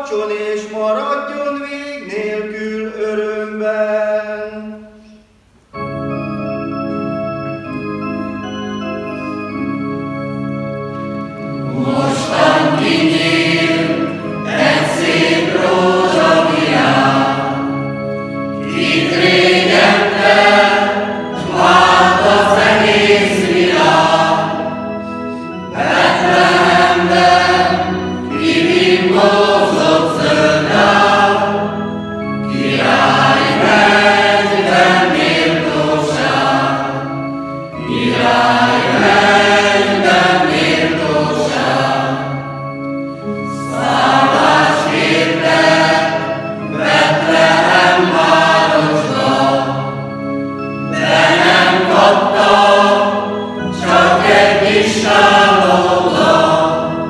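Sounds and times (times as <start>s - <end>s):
electronic keyboard organ chords: 0.0s - 57.0s
mixed choir singing a carol: 11.4s - 57.0s.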